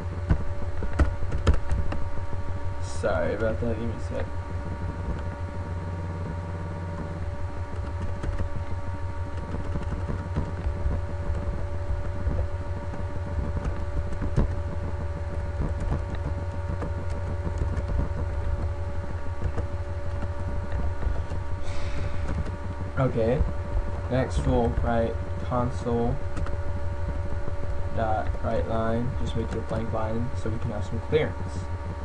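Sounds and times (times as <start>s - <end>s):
low electrical hum: 0.0s - 32.0s
keyboard typing: 7.7s - 8.6s, 9.3s - 21.4s.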